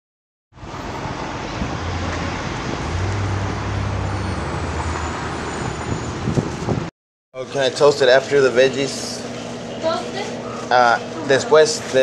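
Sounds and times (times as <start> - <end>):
road traffic rush: 0.6 - 6.9, 8.0 - 12.0
vehicle engine hum: 0.6 - 6.9.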